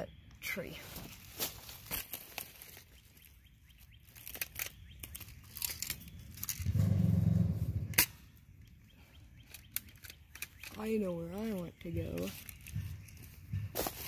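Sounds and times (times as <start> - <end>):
dry leaves crackling: 0.4 - 7.1, 9.4 - 14.0
low hum: 6.1 - 8.7.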